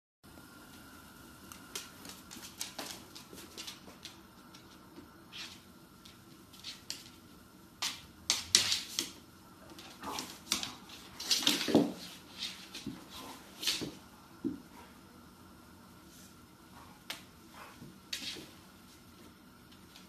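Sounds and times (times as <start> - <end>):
dog claws tapping on hard floor: 1.5 - 4.8, 7.8 - 13.0.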